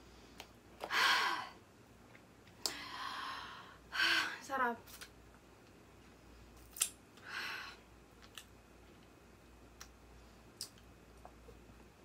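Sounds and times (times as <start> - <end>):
lip smacks and tongue clicks: 9.8 - 11.5.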